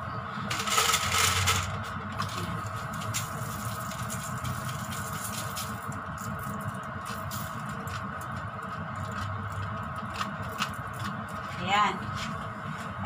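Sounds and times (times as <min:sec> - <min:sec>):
background hum: 0:00.0 - 0:13.0
salt grains pattering: 0:02.4 - 0:09.3.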